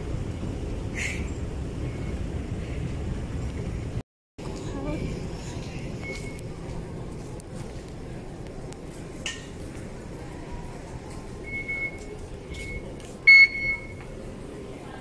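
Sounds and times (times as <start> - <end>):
station concourse background noise: 0.0 - 15.0
fare gate electronic beeps: 11.4 - 14.0.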